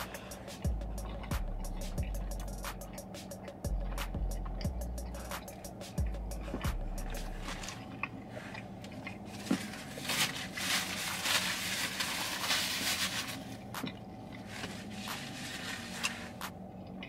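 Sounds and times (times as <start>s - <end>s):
wet mouth clicks: 0.0s - 9.3s
person chewing: 0.0s - 12.3s
paper wrapper rustling: 9.3s - 13.7s, 14.4s - 16.4s.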